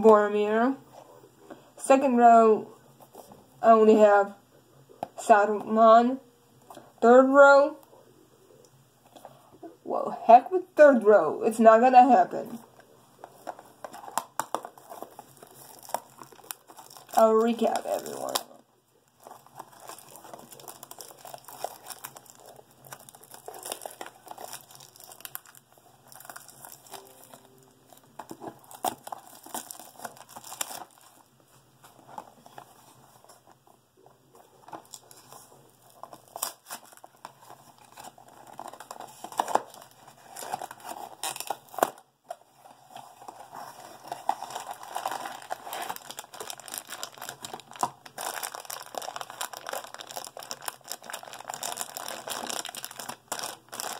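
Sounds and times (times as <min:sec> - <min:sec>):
wrapping crinkling and tearing: 0:12.7 - 0:33.6, 0:34.3 - 0:53.9.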